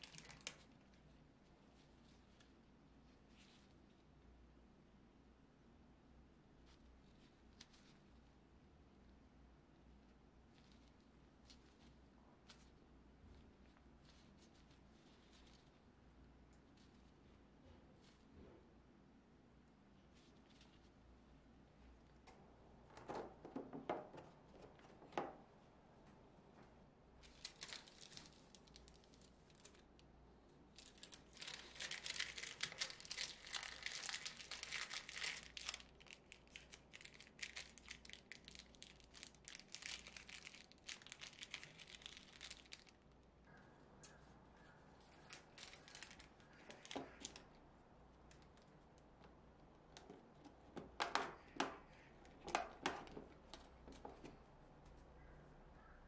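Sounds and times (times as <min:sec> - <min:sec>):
paper and plastic crinkling: 0:00.0 - 0:01.0, 0:10.5 - 0:15.9, 0:27.2 - 0:30.0, 0:30.7 - 0:43.0, 0:45.0 - 0:47.6.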